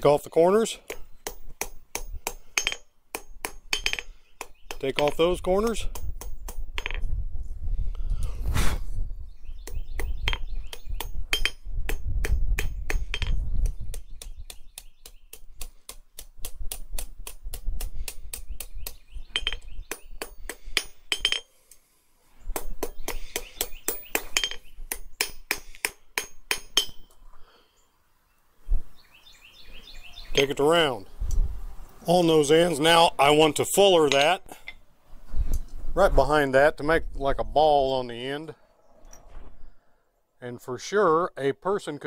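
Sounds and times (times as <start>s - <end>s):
hammer striking steel on anvil: 0.9s - 5.2s, 10.2s - 13.4s, 19.4s - 21.5s, 22.6s - 27.1s.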